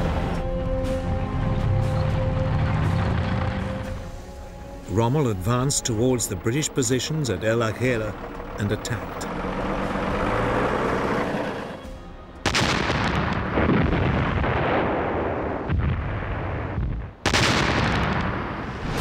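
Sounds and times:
vehicle engine drone: 0.0s - 12.4s
artillery gun blasts: 12.4s - 19.0s.

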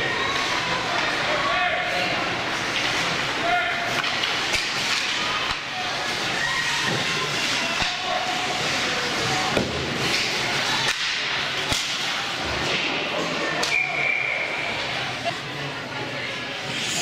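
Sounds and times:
hockey sticks and puck clacking: 2.1s - 13.9s.

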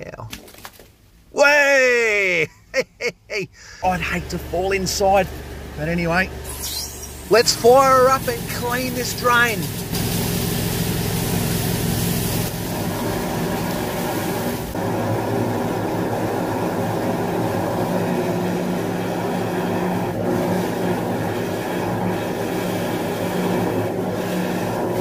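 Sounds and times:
pump engine humming: 3.6s - 25.0s
loud hiss: 6.4s - 14.8s
water blasting through drain: 6.4s - 25.0s
water gushing out: 6.5s - 14.8s.

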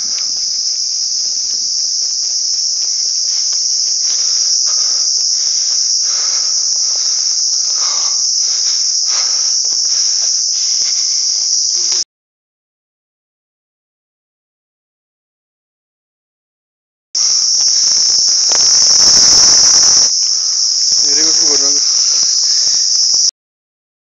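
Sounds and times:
crickets chirping: 0.0s - 12.0s, 17.2s - 23.3s.

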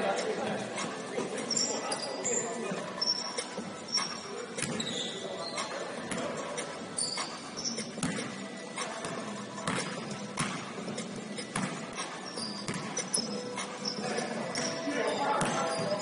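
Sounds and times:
sneakers squeaking on court: 0.8s - 16.0s
basketball bouncing on hardwood floor: 12.7s - 12.9s.

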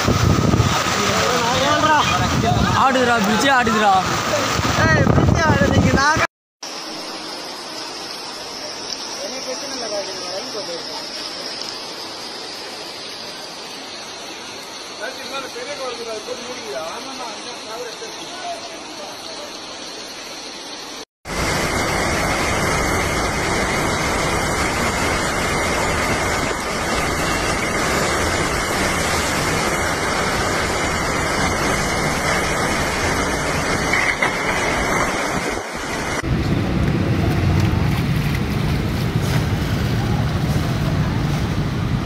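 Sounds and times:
heavy rain pouring: 0.0s - 42.0s
low rough rumble: 36.2s - 42.0s.

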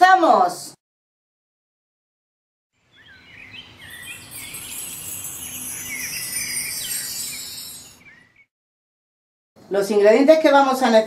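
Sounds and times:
birds chirping and twittering: 2.8s - 8.5s.

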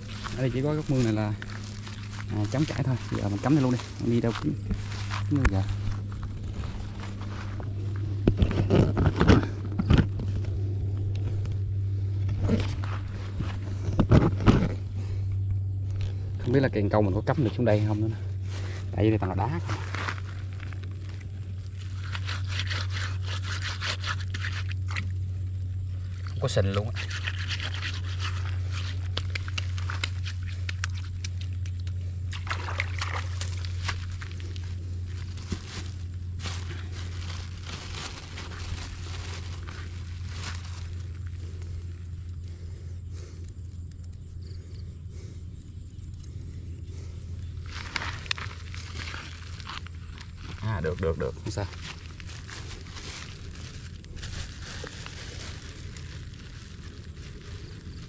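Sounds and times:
steady low hum: 0.0s - 58.0s
plastic bag crinkling: 32.3s - 42.3s, 47.6s - 58.0s.

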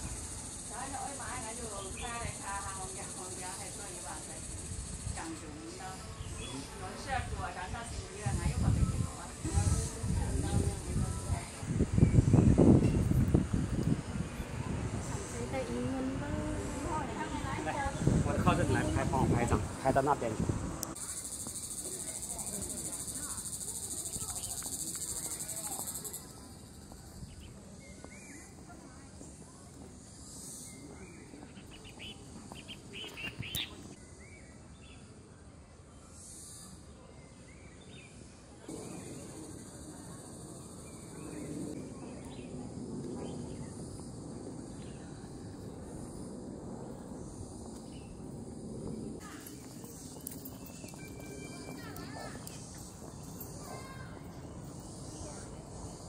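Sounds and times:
insect pulsing buzz: 0.0s - 7.3s, 7.9s - 27.5s, 38.7s - 41.8s, 42.4s - 56.0s
faint high insect hum: 0.0s - 56.0s
low outdoor background noise: 0.0s - 56.0s.

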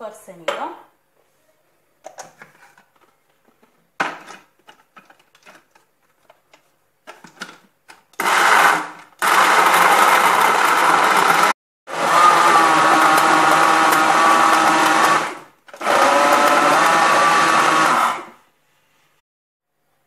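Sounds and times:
blender motor running: 8.2s - 18.4s.

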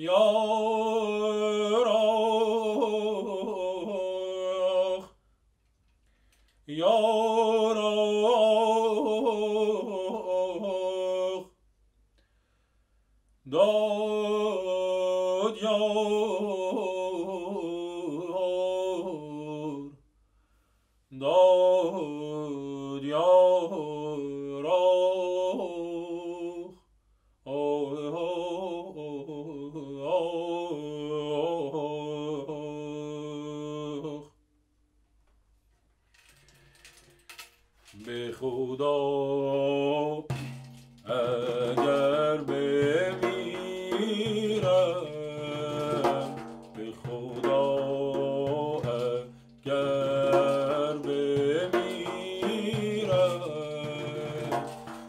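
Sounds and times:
man singing unaccompanied: 0.0s - 5.2s, 6.6s - 11.6s, 13.5s - 20.0s, 21.1s - 26.8s, 27.5s - 34.4s, 37.9s - 55.0s
frame drum strokes: 40.3s - 55.0s.

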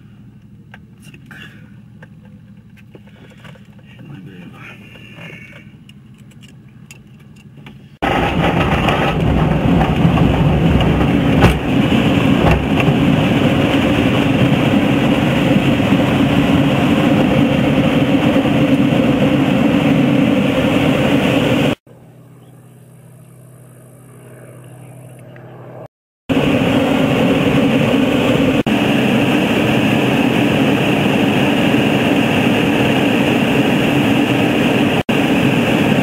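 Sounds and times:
distant engine: 0.0s - 36.0s
tow-plane engine: 0.0s - 36.0s
rush of airflow: 8.0s - 21.8s, 26.3s - 36.0s.

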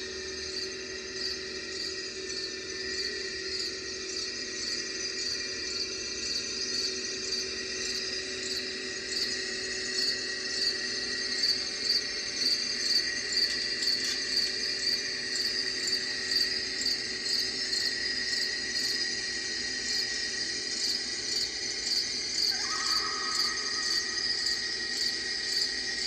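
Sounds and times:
crickets chirping: 0.0s - 26.0s.

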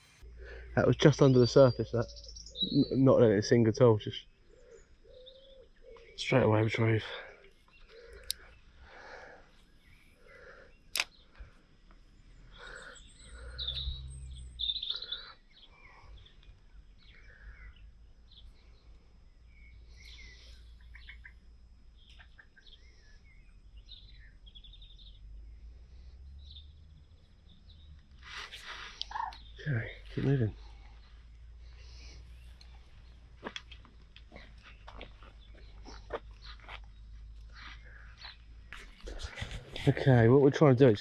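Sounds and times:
small birds chirping: 0.0s - 41.0s
sharp click: 10.9s - 11.2s.

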